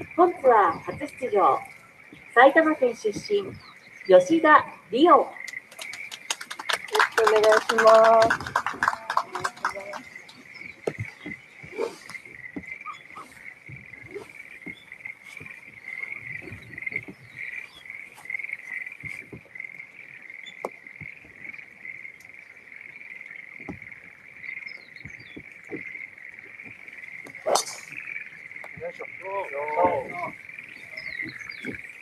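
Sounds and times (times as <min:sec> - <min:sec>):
chorus of frogs calling: 0:00.0 - 0:32.0
sharp crack: 0:27.3 - 0:28.0.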